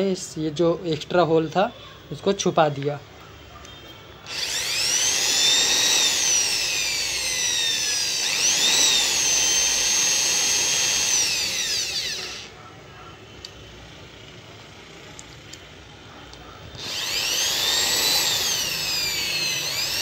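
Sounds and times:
electric drill motor whining: 0:04.2 - 0:12.6, 0:16.7 - 0:20.0.

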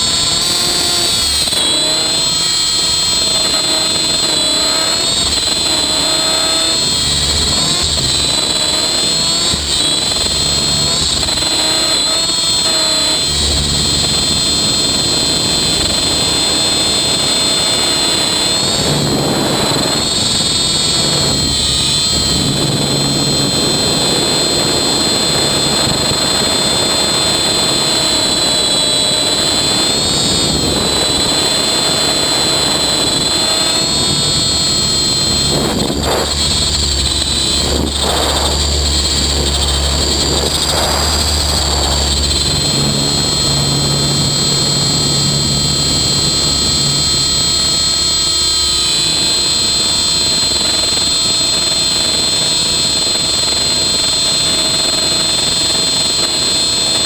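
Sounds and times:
rc helicopter motor whine: 0:00.0 - 0:57.0
low rumble: 0:33.8 - 0:49.8.

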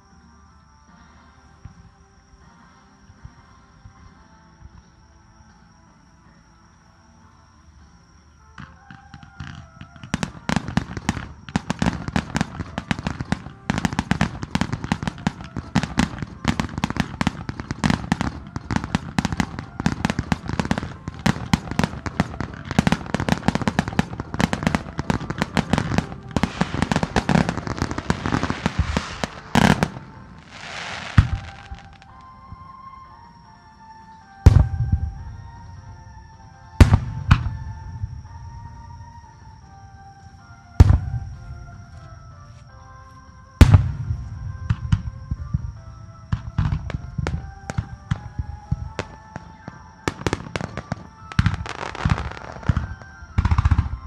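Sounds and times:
fireworks bursting: 0:08.6 - 0:32.7, 0:34.3 - 0:42.5, 0:43.6 - 0:54.0
firework hissing rush: 0:24.6 - 0:32.1.

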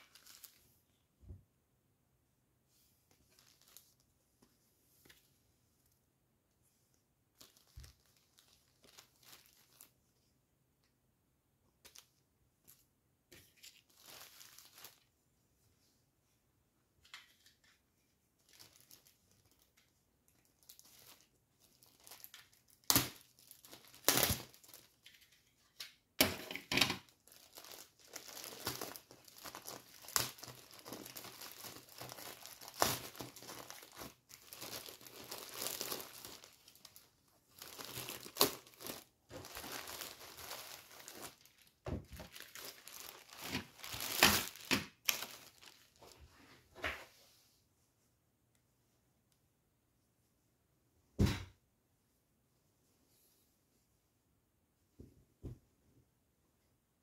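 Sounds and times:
plastic bag crinkling and tearing: 0:00.0 - 0:00.6, 0:03.3 - 0:04.0, 0:07.4 - 0:10.0, 0:13.5 - 0:15.1, 0:18.4 - 0:25.3, 0:26.7 - 0:46.2.

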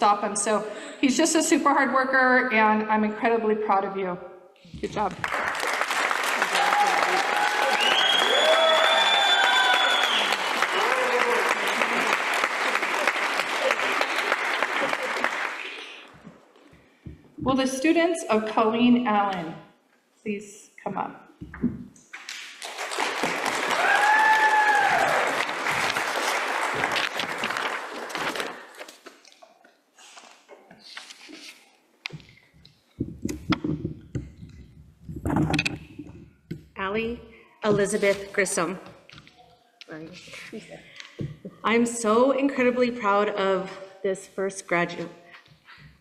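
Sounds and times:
audience applauding: 0:05.0 - 0:16.2, 0:22.2 - 0:28.8
microphone being handled: 0:30.5 - 0:36.6.

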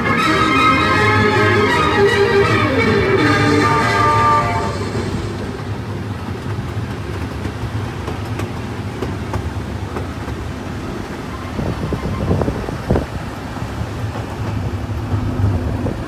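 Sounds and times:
ride music: 0:00.0 - 0:06.0
train rumbling on track: 0:00.0 - 0:16.0
wheels clicking: 0:02.0 - 0:16.0.

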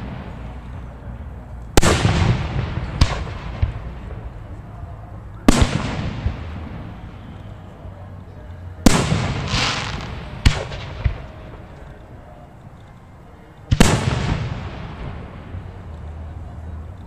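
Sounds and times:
fireworks shells bursting: 0:09.3 - 0:11.2.

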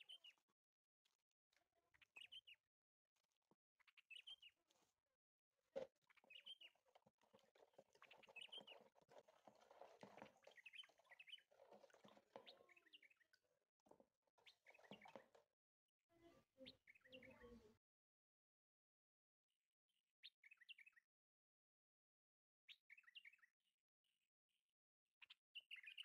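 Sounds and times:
wooden spoon stirring water: 0:05.8 - 0:15.5.

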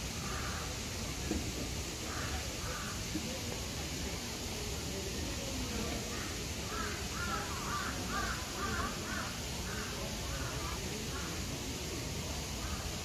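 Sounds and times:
crow cawing: 0:06.7 - 0:09.9.

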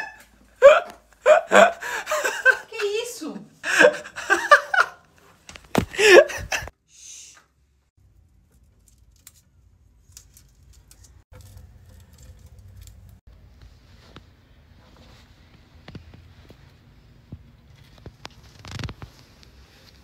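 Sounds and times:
woman's voice: 0:02.4 - 0:03.6.

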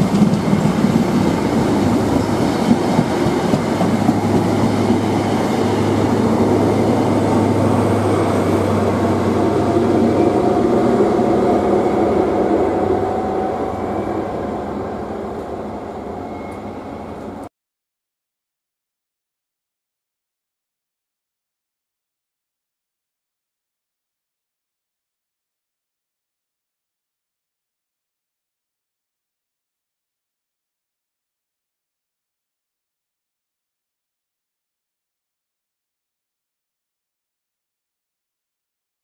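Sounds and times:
train wheels rumbling on rails: 0:00.0 - 0:17.5.

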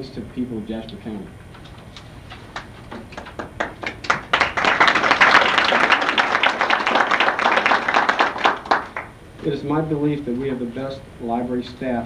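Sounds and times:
audience applauding: 0:02.4 - 0:09.1.

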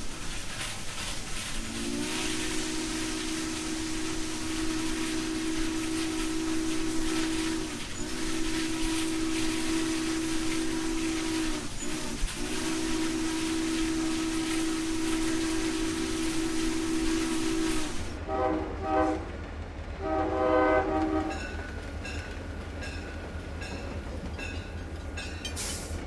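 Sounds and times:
steady hiss: 0:00.0 - 0:18.2
model train chime whistle: 0:01.8 - 0:19.2, 0:20.0 - 0:21.7.

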